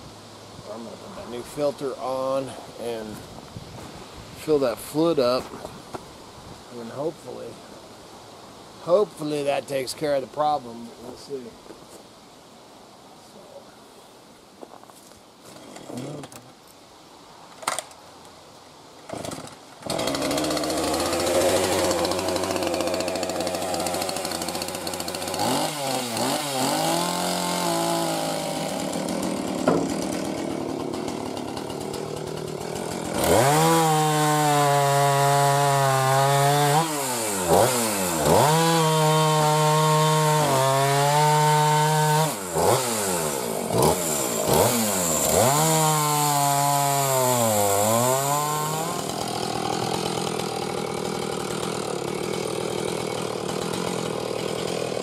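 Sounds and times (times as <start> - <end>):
chainsaw engine: 19.1 - 55.0.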